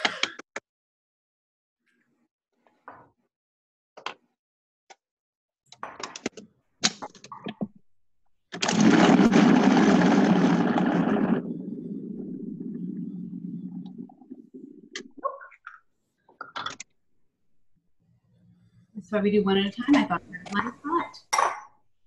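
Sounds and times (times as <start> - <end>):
food processor motor running: 8.6 - 11.5.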